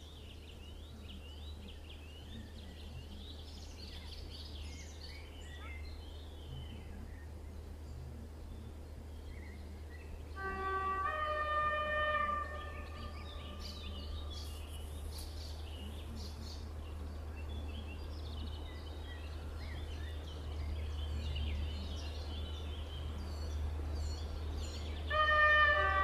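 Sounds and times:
small birds chirping: 0.0s - 26.0s
train horn: 10.3s - 14.6s, 25.1s - 26.0s.

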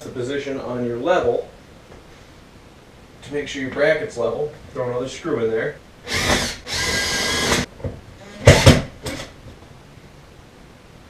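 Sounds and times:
power drill driving a screw: 6.1s - 7.7s, 8.4s - 9.3s
sharp knocks: 7.5s - 9.3s.

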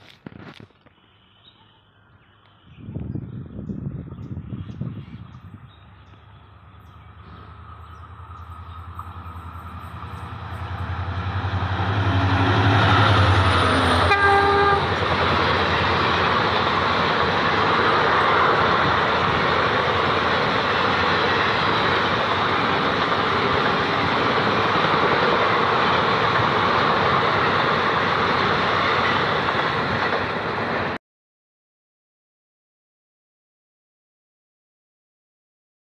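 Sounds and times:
locomotive hum: 3.4s - 31.0s
train coaches rushing with wheel clatter: 3.4s - 31.0s
train horn: 10.6s - 15.0s.

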